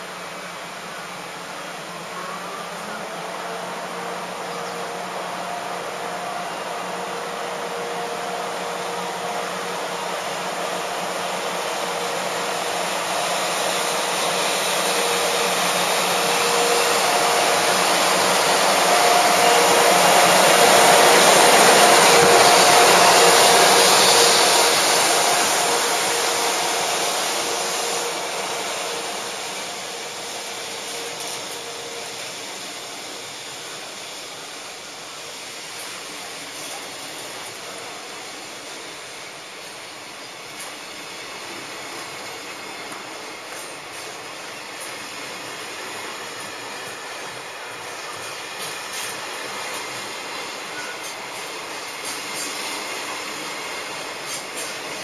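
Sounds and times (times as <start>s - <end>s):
locomotive blowers whirring: 6.8s - 34.4s.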